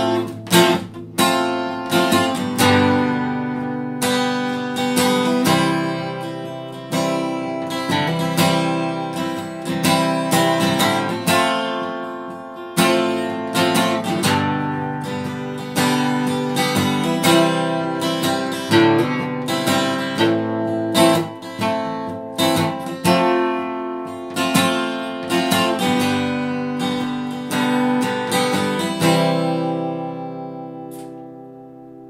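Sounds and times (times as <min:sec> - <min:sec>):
acoustic guitar strumming: 0:00.0 - 0:32.0.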